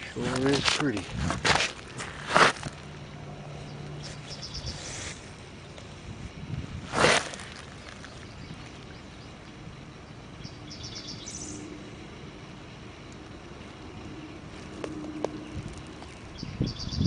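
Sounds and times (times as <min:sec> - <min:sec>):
small bird chirping: 0:03.6 - 0:05.9, 0:07.4 - 0:11.7, 0:15.4 - 0:17.0.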